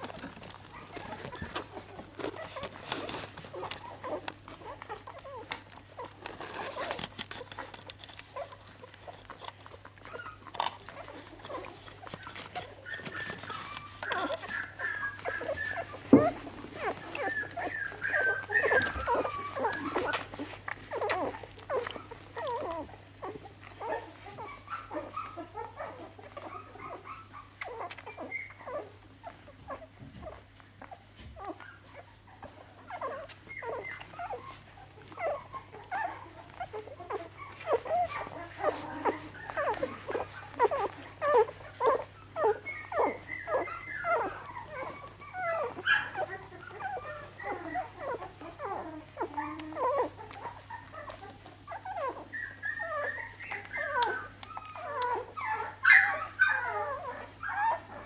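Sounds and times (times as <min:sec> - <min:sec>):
puppies suckling smacks: 0:00.0 - 0:58.0
puppies whimpering and squeaking: 0:00.0 - 0:58.0.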